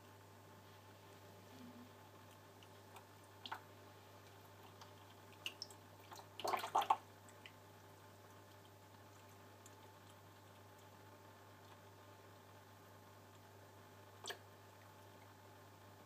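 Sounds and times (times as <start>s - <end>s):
cat lapping water: 2.2s - 7.6s.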